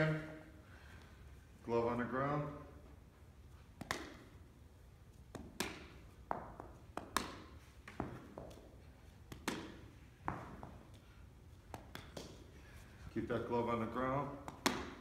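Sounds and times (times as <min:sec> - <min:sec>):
balls knocking on turf: 0:05.3 - 0:08.7, 0:09.3 - 0:11.0.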